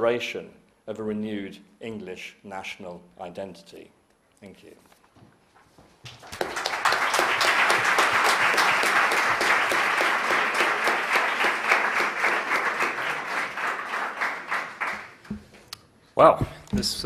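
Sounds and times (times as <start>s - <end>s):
audience applauding: 6.1s - 15.2s.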